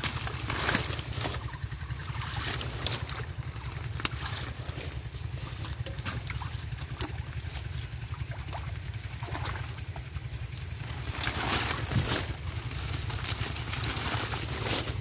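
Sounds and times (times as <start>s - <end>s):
muddy water splashing: 0.0s - 15.0s
wet plants rustling: 0.0s - 15.0s.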